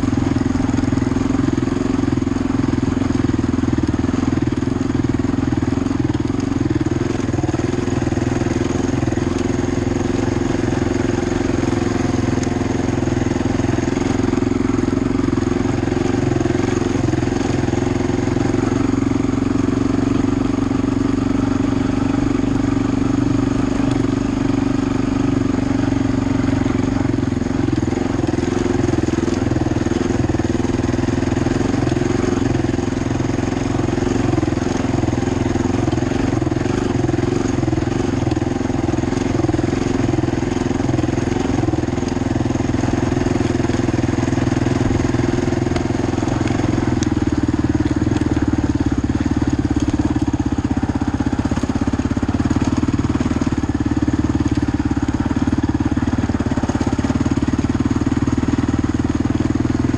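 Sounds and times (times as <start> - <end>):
quad engine running: 0.0 - 59.9.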